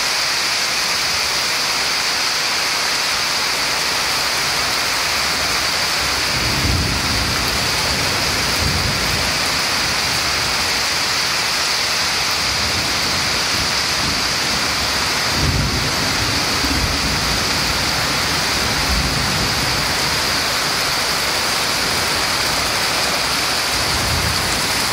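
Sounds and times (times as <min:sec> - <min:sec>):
heavy rain pouring: 0:00.0 - 0:24.9
low thunder rumbles: 0:06.2 - 0:10.2, 0:12.5 - 0:20.4, 0:23.2 - 0:24.9.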